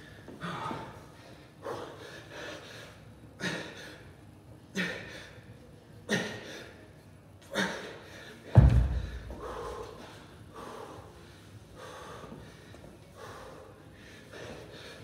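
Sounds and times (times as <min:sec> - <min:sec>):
man breathing out hard: 0:07.6 - 0:15.0
kettlebell thud on floor: 0:08.6 - 0:09.3.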